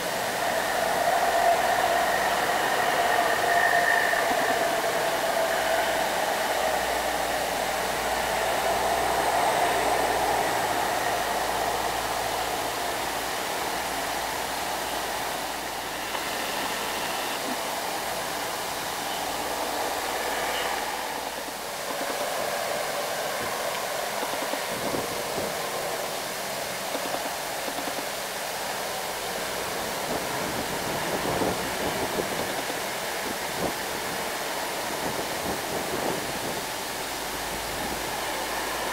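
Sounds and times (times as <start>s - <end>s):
diesel truck engines passing: 0.0s - 24.2s
road and tyre hiss: 0.0s - 38.9s.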